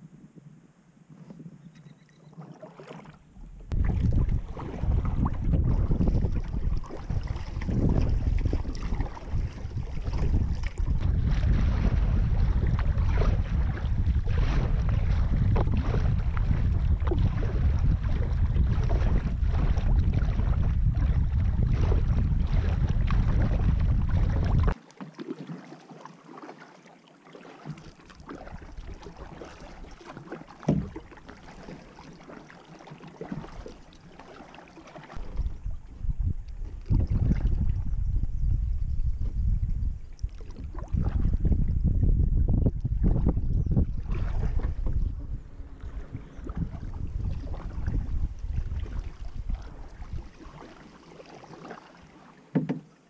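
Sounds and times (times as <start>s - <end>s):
paddle strokes: 1.1s - 37.8s, 40.1s - 41.4s, 42.8s - 53.0s
water splashing: 2.1s - 38.0s, 40.2s - 41.7s, 42.8s - 53.0s
wind buffeting microphone: 3.4s - 24.8s, 35.2s - 50.5s.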